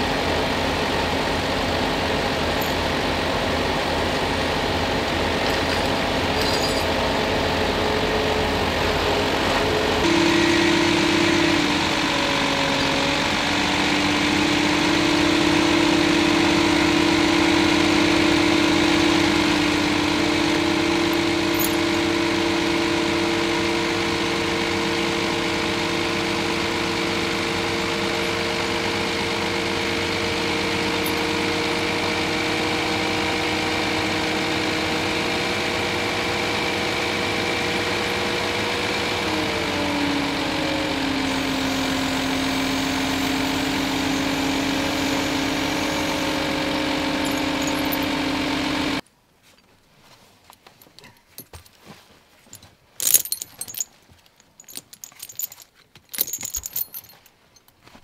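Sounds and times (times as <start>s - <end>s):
diesel engine idling: 0.0s - 49.0s
metallic clinks of tyre chains: 5.5s - 7.0s, 21.5s - 21.8s, 53.0s - 57.7s.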